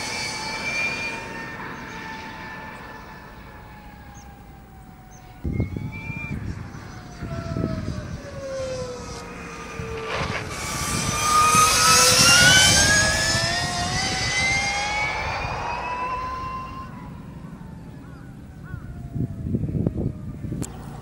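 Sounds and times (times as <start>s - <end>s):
electric motorcycle motor whining: 5.0s - 20.9s.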